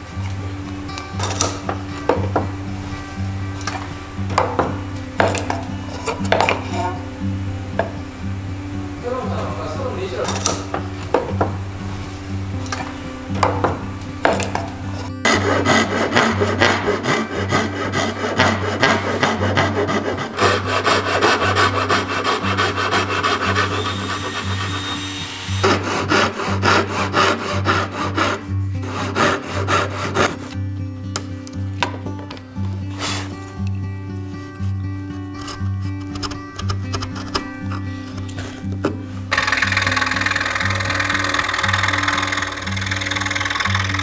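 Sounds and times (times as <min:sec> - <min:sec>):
hand saw cutting wood: 0:03.6 - 0:06.9, 0:10.1 - 0:11.3, 0:12.1 - 0:30.6, 0:32.9 - 0:33.4, 0:39.3 - 0:44.0.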